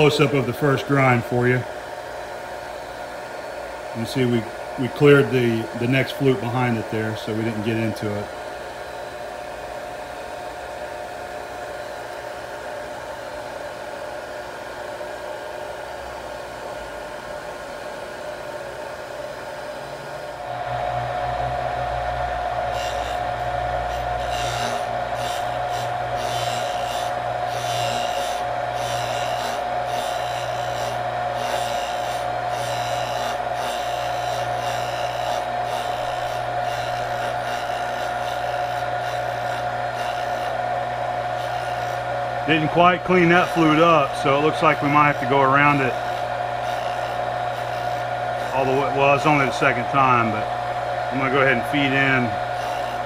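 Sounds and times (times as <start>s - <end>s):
grinder motor humming: 0.0s - 53.0s
grinding wheel scraping drill bit: 20.4s - 53.0s.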